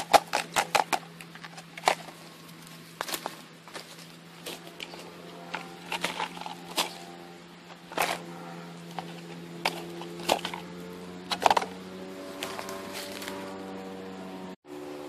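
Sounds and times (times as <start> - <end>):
plastic bottles crinkling: 0.0 - 7.1.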